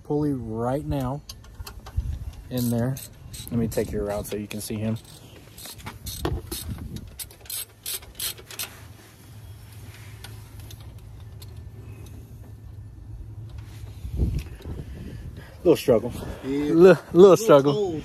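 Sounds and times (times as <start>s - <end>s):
steady low hum: 0.0s - 18.0s
socket ratchet clicking: 2.6s - 3.8s, 5.0s - 8.7s.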